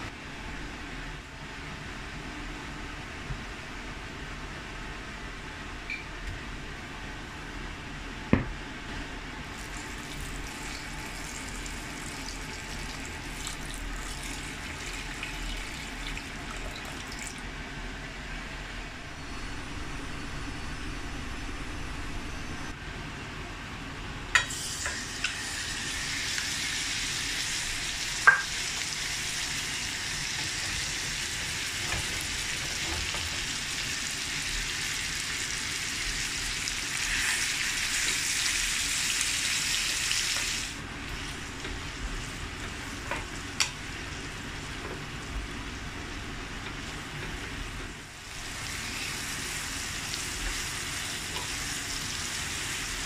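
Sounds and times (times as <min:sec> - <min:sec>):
meat sizzling in a frying pan: 0:24.5 - 0:44.7, 0:48.0 - 0:53.0.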